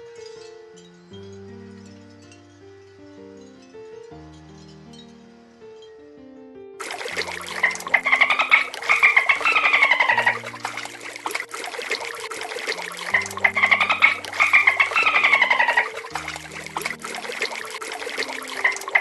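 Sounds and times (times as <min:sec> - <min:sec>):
soft background music: 0:00.0 - 0:19.0
sea lions squawking: 0:07.0 - 0:19.0
sea lion colony din: 0:12.8 - 0:17.3.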